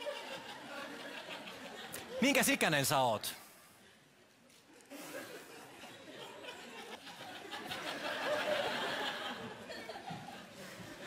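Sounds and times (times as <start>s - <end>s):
studio audience laughing: 0.0s - 2.4s, 5.0s - 11.0s.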